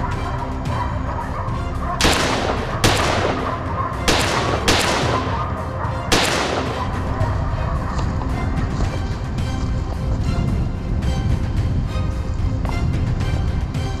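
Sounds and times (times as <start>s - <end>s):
rifle shots: 2.0s - 7.2s.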